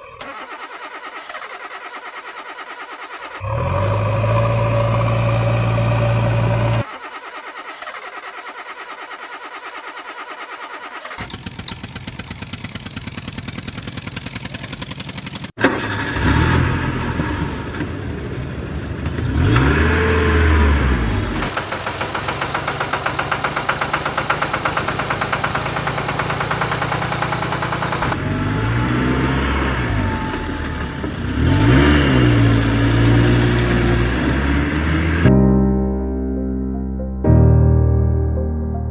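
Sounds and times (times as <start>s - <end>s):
engine running and revving: 3.4s - 6.9s, 11.2s - 35.3s.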